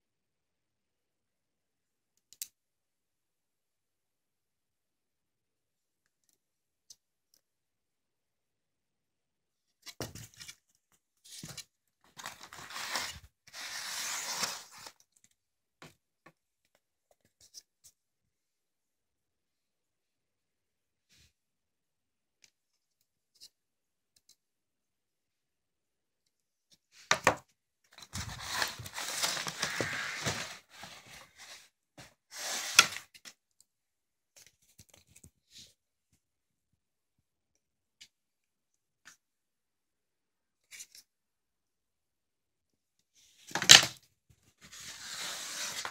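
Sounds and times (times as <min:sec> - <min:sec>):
rustling and scraping of packaging: 0:11.3 - 0:15.0, 0:28.0 - 0:33.1, 0:44.6 - 0:45.9.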